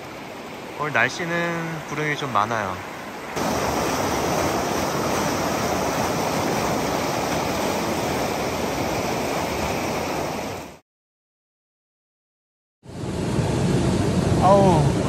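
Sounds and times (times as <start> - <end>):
stream rushing over rocks: 0.0 - 10.8.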